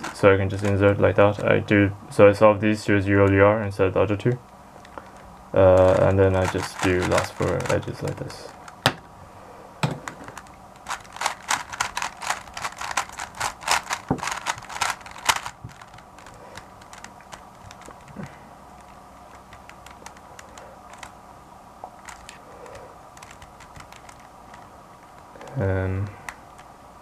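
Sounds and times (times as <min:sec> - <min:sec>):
plastic puzzle cube clacking: 0:04.8 - 0:08.8, 0:10.0 - 0:21.2, 0:21.9 - 0:25.6.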